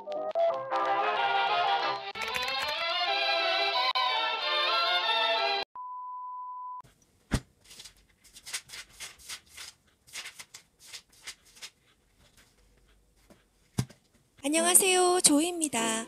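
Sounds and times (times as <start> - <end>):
paper pages flipping: 2.2 - 2.8, 7.3 - 13.8.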